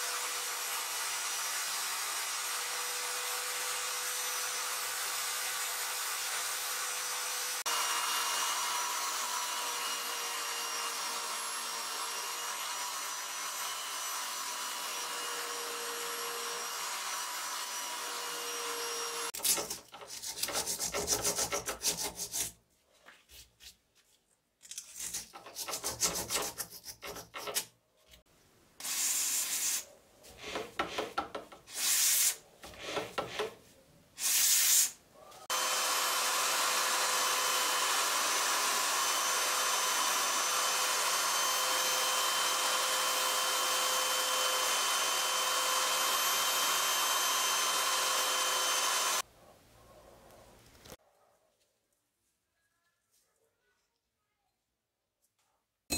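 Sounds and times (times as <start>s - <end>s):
electric drill spinning: 0.0s - 19.7s, 34.2s - 49.2s
sandpaper sanding metal: 19.4s - 22.6s, 25.0s - 27.7s.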